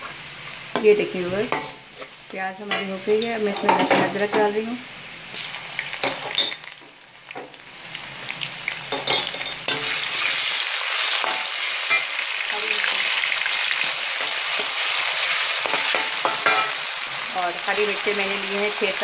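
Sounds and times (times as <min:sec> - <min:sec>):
onions sizzling in hot oil: 0:00.0 - 0:19.0
metal spatula scraping and tapping: 0:01.5 - 0:04.0.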